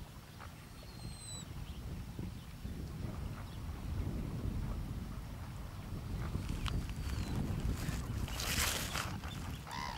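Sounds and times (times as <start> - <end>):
wind on microphone: 0.0 - 9.9
waves lapping on shingle: 6.1 - 9.9.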